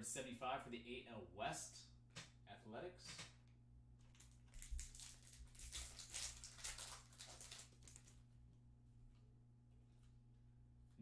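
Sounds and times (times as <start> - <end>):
low electrical hum: 0.0 - 11.0
foil pack crinkling: 4.0 - 8.2.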